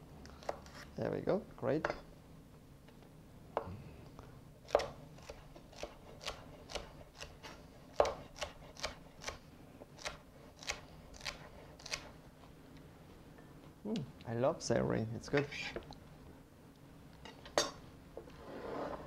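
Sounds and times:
knife chopping on wooden board: 4.7s - 9.4s.

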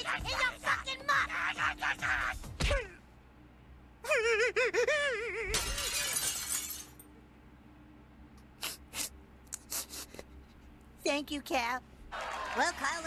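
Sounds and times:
crashing shattering noise: 5.5s - 7.0s.

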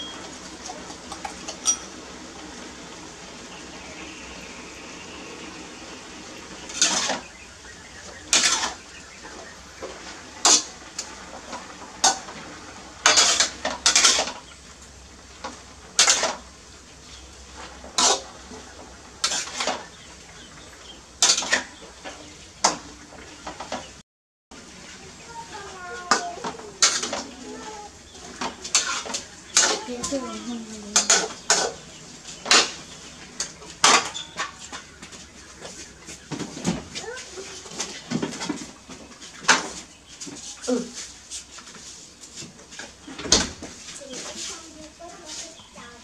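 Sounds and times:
metal spatula scraping a wok: 8.3s - 8.8s, 13.0s - 14.4s, 17.9s - 18.3s, 19.2s - 19.8s, 26.8s - 27.3s, 28.7s - 30.1s.

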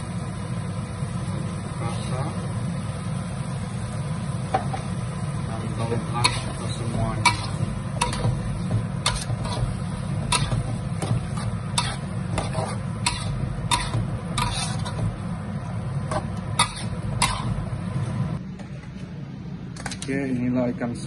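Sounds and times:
metal spoon scraping wok: 5.8s - 15.3s, 16.1s - 17.8s.

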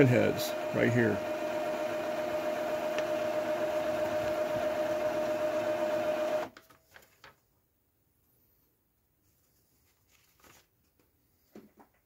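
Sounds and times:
printer mechanical hum: 0.0s - 6.5s.

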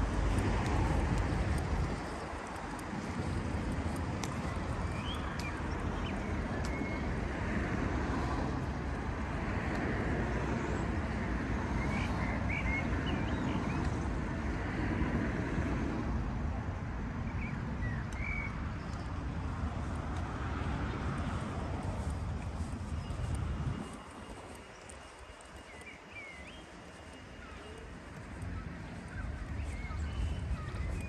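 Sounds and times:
distant traffic rumble: 0.0s - 31.0s
wind: 0.0s - 31.0s
bird chirps: 28.6s - 31.0s.

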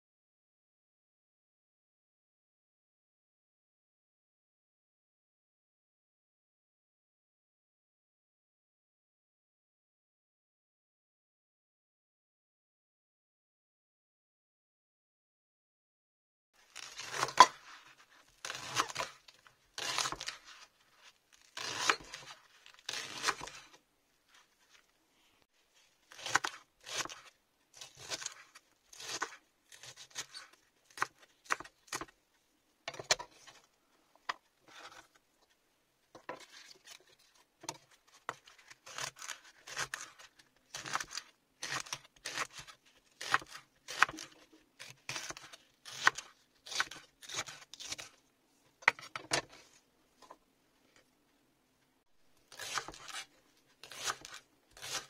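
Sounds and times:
knife crunching through leeks: 16.6s - 24.8s, 26.0s - 32.1s, 36.4s - 48.2s, 52.5s - 55.0s.

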